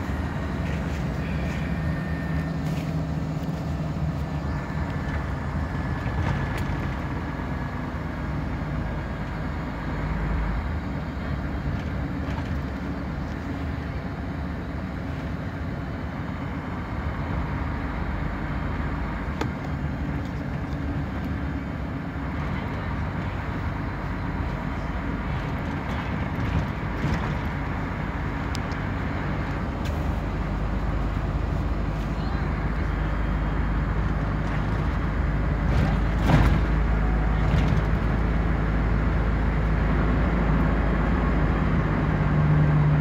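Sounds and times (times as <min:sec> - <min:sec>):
coach diesel engine drone: 0:00.0 - 0:43.0
road noise: 0:00.0 - 0:43.0
light interior rattle: 0:11.6 - 0:13.7, 0:24.0 - 0:27.8, 0:34.0 - 0:38.4.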